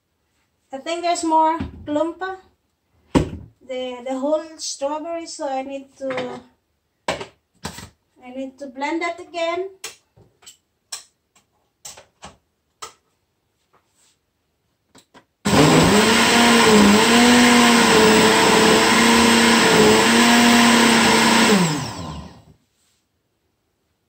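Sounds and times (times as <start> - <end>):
blender motor running: 15.5 - 22.5.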